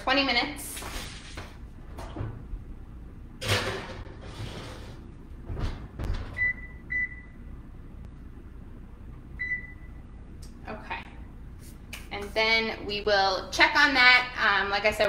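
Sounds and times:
baking sheet scraping metal: 3.4 - 5.2
control panel beeps: 6.4 - 7.4, 9.4 - 10.0.

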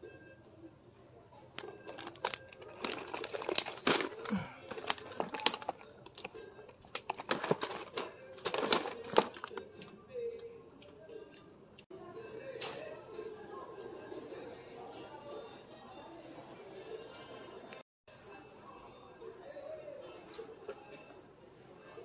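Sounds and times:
plastic bag crinkling: 1.6 - 9.6.

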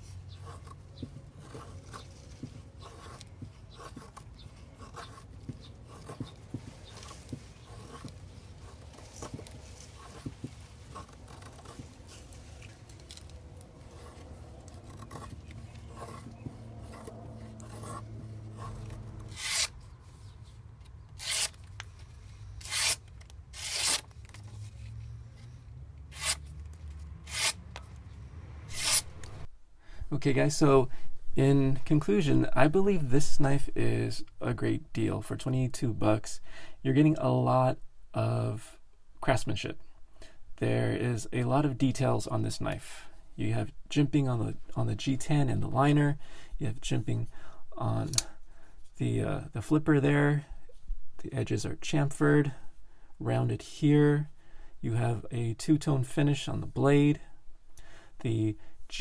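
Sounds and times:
knife shaving wood: 0.2 - 19.8, 21.2 - 22.0, 22.6 - 24.4.

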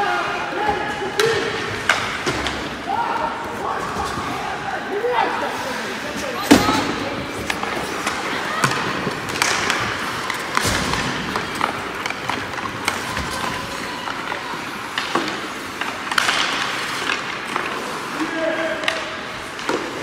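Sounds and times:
hockey sticks and puck clacking: 0.0 - 20.0
skate blades scraping ice: 5.0 - 20.0.

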